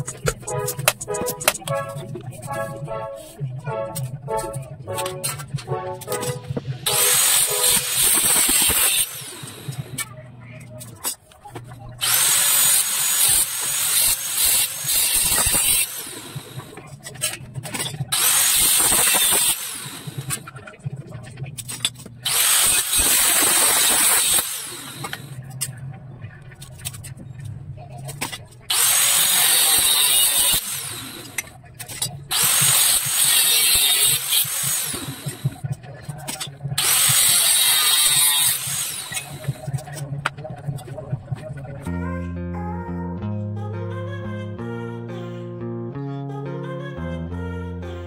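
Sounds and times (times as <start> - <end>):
angle grinder cutting steel: 6.1 - 10.0, 12.0 - 16.8, 18.1 - 20.5, 22.2 - 25.4, 28.7 - 35.6, 36.4 - 39.7.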